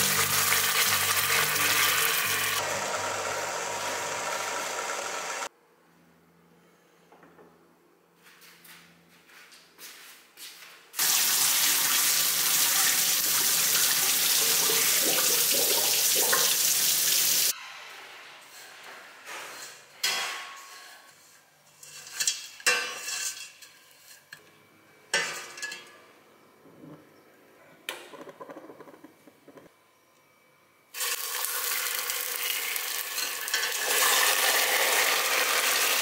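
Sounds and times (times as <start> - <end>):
water running into a sink: 11.0 - 17.5, 31.0 - 36.0
metal pots and lids clanking: 21.8 - 24.3, 25.1 - 26.0, 33.0 - 34.4.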